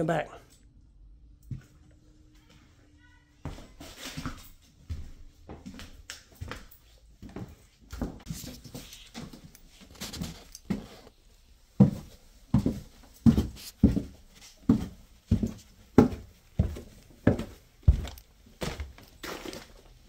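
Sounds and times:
heavy steps down a staircase: 0:11.8 - 0:19.7
footsteps on debris: 0:16.1 - 0:20.0.

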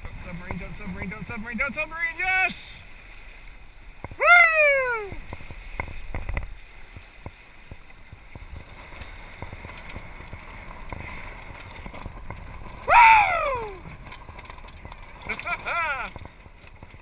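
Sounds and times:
water splashing along boat hull: 0:00.0 - 0:17.0
person shouting: 0:04.2 - 0:05.2, 0:12.9 - 0:13.8.

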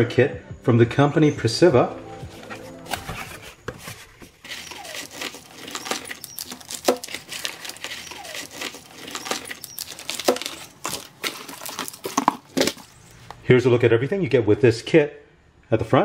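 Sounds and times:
cardboard box opened: 0:02.3 - 0:13.3
plastic parts rustling and clicking: 0:02.3 - 0:13.4
short squeaky scrapes: 0:02.4 - 0:12.0.

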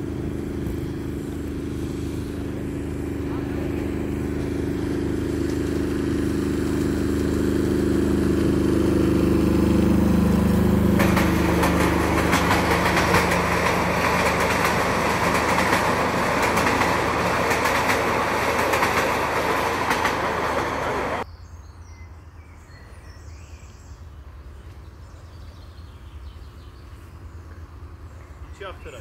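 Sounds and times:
wheels clattering on steel bridge: 0:00.0 - 0:21.2
miniature train humming: 0:00.0 - 0:21.3.

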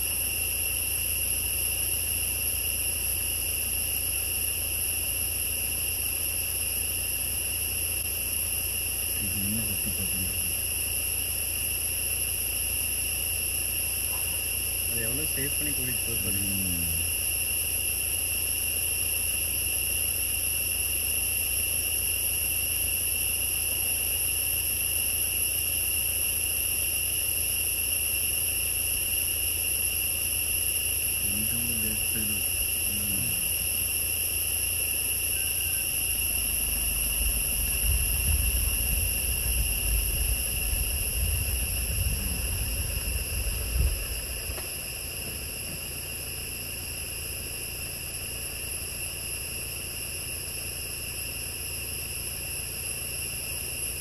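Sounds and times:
insects droning: 0:00.0 - 0:54.0
low rumble: 0:36.3 - 0:45.6.

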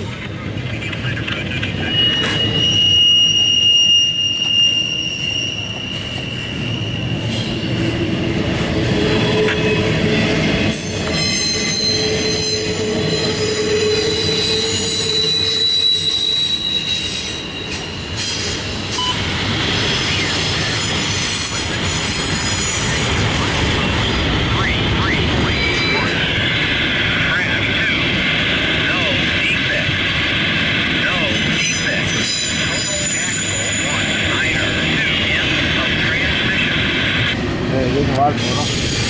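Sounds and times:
freight train rumbling on rails: 0:00.0 - 0:39.0
high wheel squeals: 0:01.8 - 0:07.9, 0:10.8 - 0:19.2, 0:31.3 - 0:34.3.

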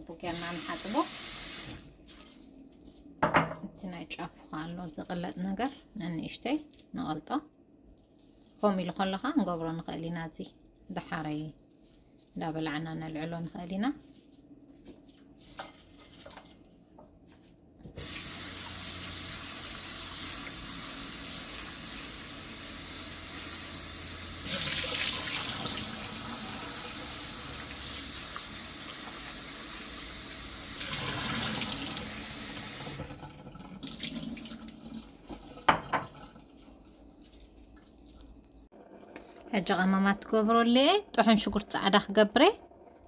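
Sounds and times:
faucet water rushing into sink: 0:00.3 - 0:01.8, 0:18.0 - 0:36.5.

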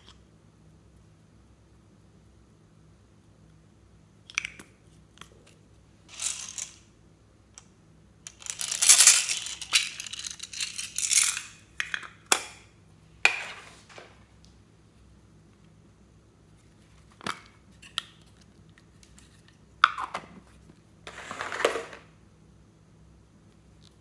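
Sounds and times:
plastic beads rattling: 0:06.1 - 0:06.9, 0:08.3 - 0:11.6.

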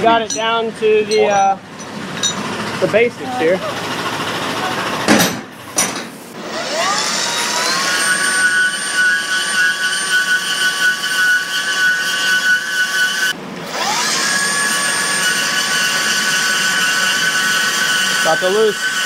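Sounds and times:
angle grinder cutting steel: 0:06.4 - 0:19.0.

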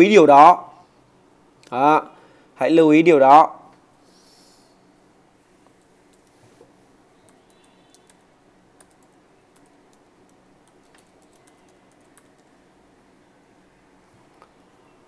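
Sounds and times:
faint keyboard typing: 0:05.6 - 0:12.7.

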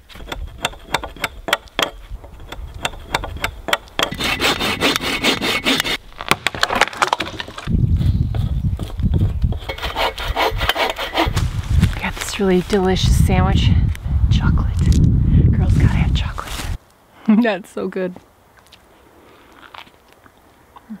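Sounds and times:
hand saw rasping through wood: 0:00.0 - 0:06.0, 0:08.8 - 0:11.4
saw teeth clicking: 0:00.1 - 0:06.0.

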